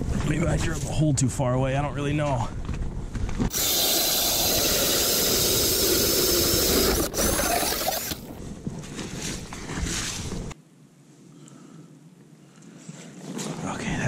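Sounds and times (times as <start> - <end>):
power ice auger drilling ice: 3.5 - 8.4.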